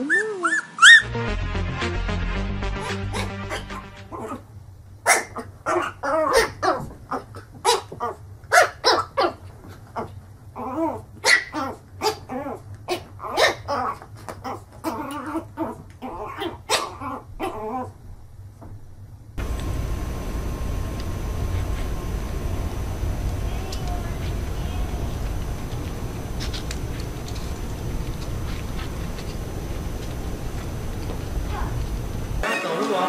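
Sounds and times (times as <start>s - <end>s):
puppy yipping: 0.0s - 1.1s, 11.2s - 12.3s.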